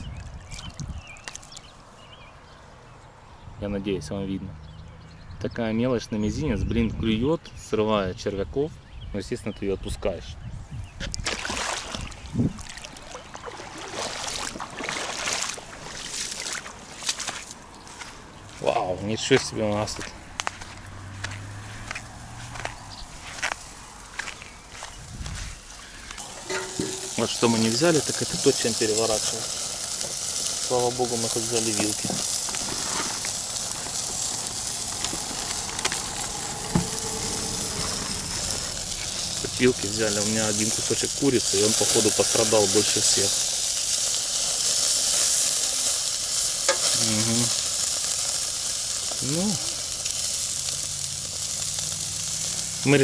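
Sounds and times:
footsteps splashing in shallow water: 0:11.2 - 0:18.6
chicken sizzling on grill: 0:25.9 - 0:53.0.

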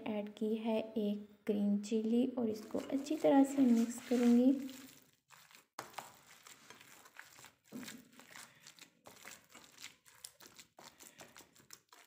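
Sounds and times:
hand kneading wet mixture: 0:02.4 - 0:12.0.

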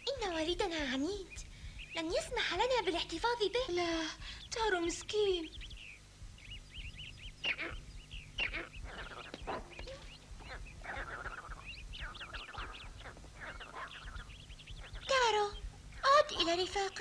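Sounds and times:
monkeys chirping and crying: 0:06.5 - 0:17.0.

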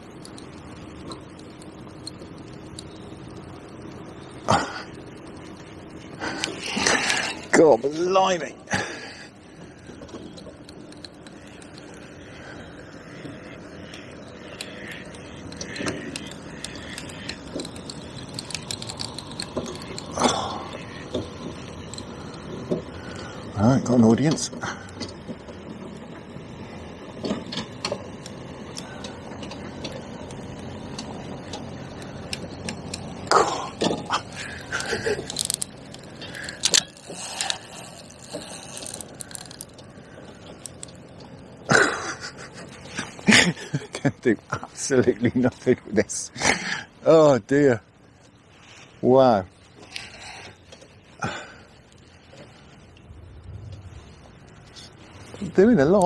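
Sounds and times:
fishing reel drag clicking: 0:00.0 - 0:08.4, 0:09.2 - 0:23.6, 0:27.6 - 0:41.4.

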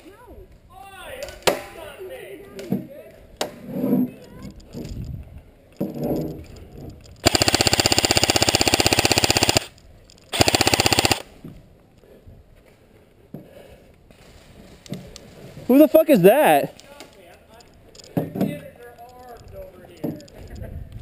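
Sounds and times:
airsoft rifle automatic fire: 0:07.2 - 0:11.3.

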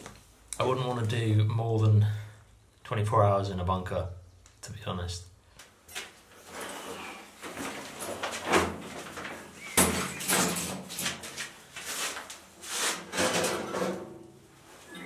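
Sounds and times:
metal folding chair clattering on concrete: 0:06.5 - 0:11.5, 0:13.1 - 0:14.3.

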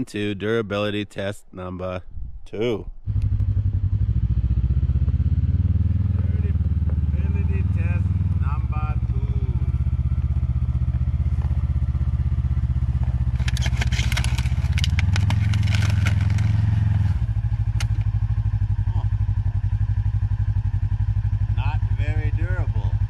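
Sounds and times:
utility vehicle engine running: 0:03.1 - 0:23.0
helmet shell cracking under tyre: 0:12.9 - 0:18.2.

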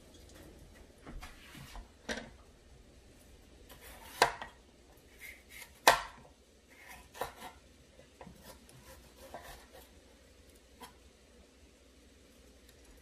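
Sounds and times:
knife cutting on wooden board: 0:03.7 - 0:07.6, 0:08.2 - 0:10.0.

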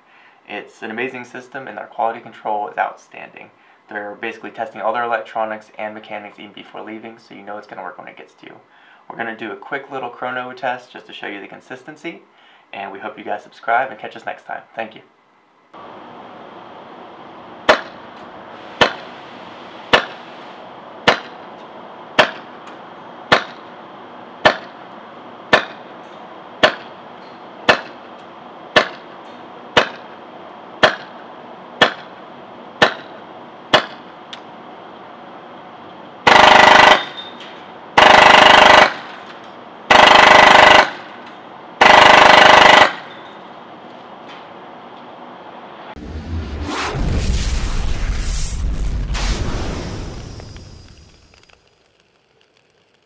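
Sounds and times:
airsoft gun full-auto bursts: 0:36.3 - 0:37.1, 0:38.0 - 0:39.1, 0:39.9 - 0:41.0, 0:41.8 - 0:43.0.

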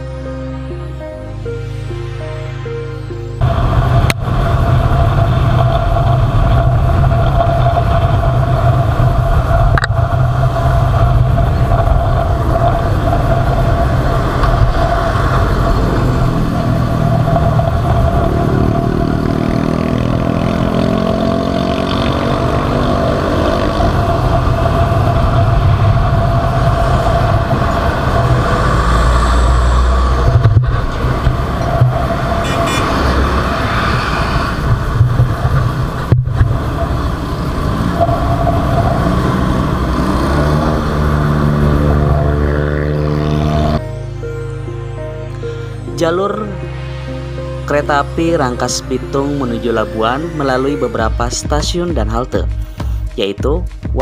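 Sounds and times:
motorcycle engine running: 0:03.4 - 0:29.2.

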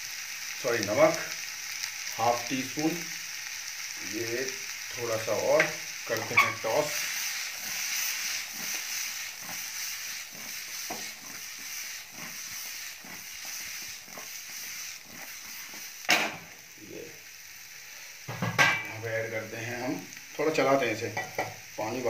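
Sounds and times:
vegetables sizzling in oil: 0:00.0 - 0:22.0
pan knocking on stove grate: 0:16.1 - 0:16.4, 0:18.3 - 0:18.9, 0:21.1 - 0:21.6.

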